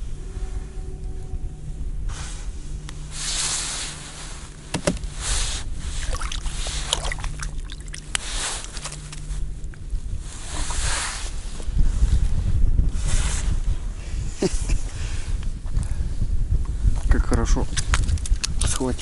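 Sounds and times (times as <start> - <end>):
water sloshing: 4.5 - 9.8
fish flopping on ice: 6.0 - 9.3.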